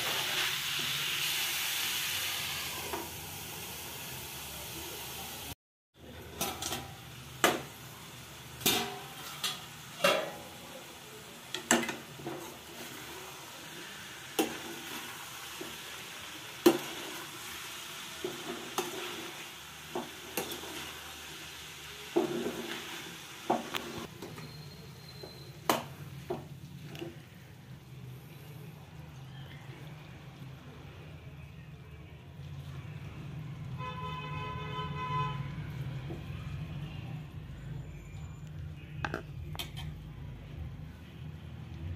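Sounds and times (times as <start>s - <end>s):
light sizzle: 0.0s - 33.8s
metal lid clanking: 8.6s - 10.4s.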